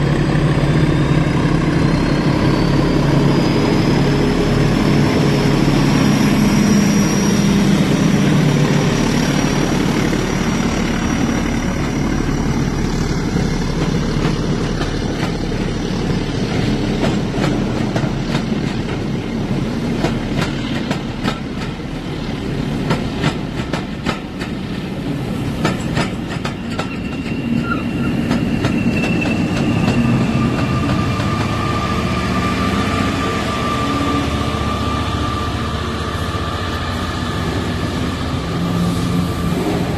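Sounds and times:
model diesel locomotive engine: 0.0 - 39.9
wheels clicking over rail joints: 22.8 - 24.9, 25.6 - 30.1.

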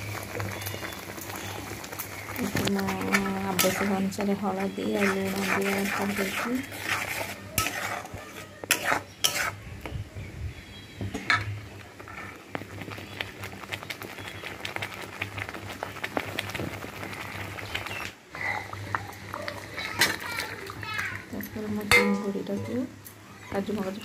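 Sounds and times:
metal spatula scraping paste: 2.7 - 9.7
low steady hum: 21.4 - 22.9.

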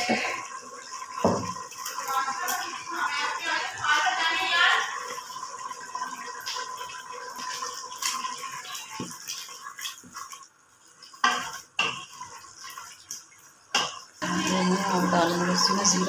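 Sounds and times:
wet gravy stirring: 5.2 - 16.0.

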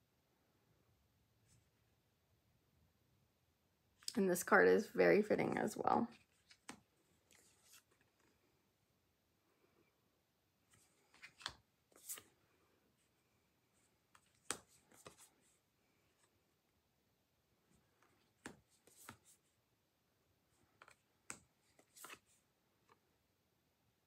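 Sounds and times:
cards tapping and sliding: 6.2 - 8.3, 10.7 - 12.4, 14.1 - 15.5, 18.0 - 19.5, 20.6 - 23.0.

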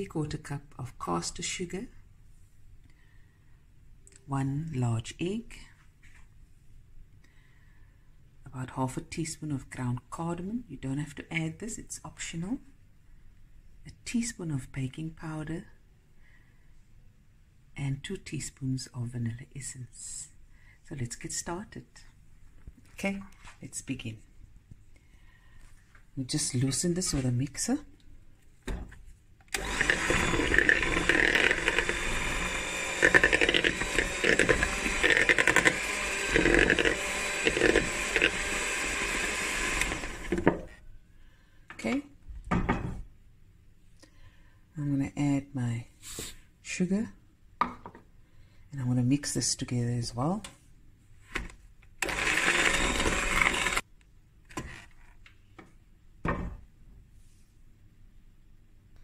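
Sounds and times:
electric hand mixer running: 29.6 - 40.4, 52.0 - 53.8.

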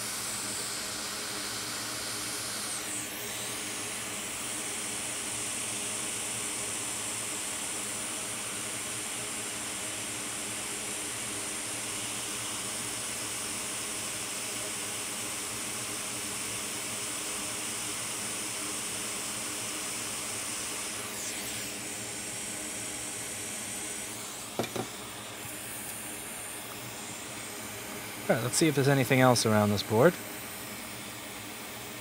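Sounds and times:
electronic equipment hiss: 24.0 - 31.2.

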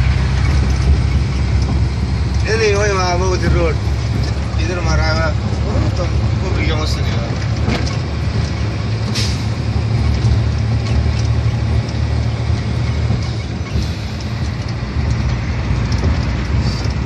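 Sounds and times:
vehicle engine and road rumble: 0.0 - 17.0
tyres hissing on wet road: 9.1 - 9.6.

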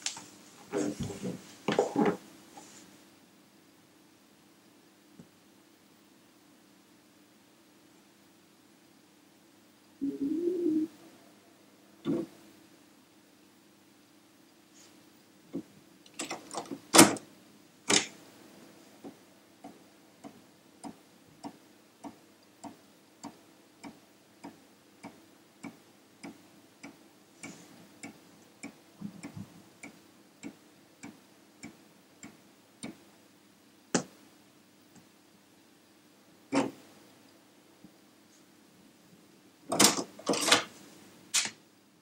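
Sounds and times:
floppy disk clunks and clicks: 39.7 - 40.7.

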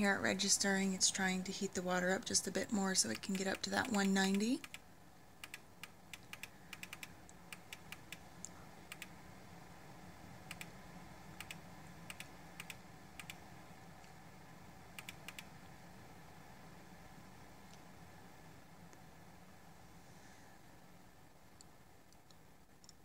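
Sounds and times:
kettle ticking and crackling: 0.0 - 9.2.

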